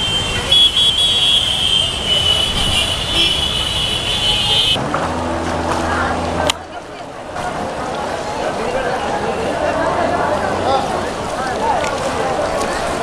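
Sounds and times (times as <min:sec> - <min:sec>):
vehicle horns sounding: 0:00.0 - 0:04.8
traffic engines running: 0:00.0 - 0:13.0.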